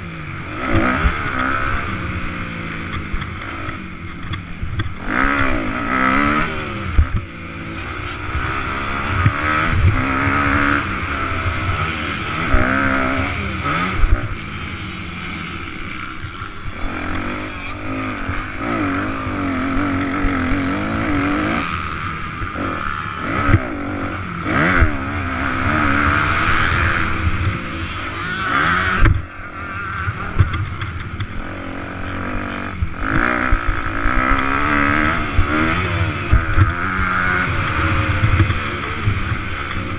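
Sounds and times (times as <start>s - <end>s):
dirt bike engine revving: 0.0s - 39.9s
sharp thumps from bumps: 28.9s - 29.3s, 30.2s - 31.4s.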